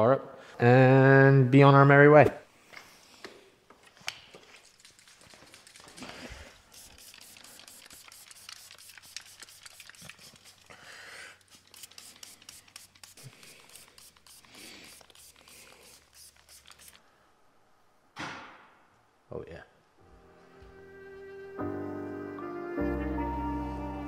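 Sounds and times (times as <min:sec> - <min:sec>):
adhesive dots peeled from sheet: 0:03.9 - 0:10.7, 0:11.4 - 0:17.0
cloth wiping painted panel: 0:04.4 - 0:10.7.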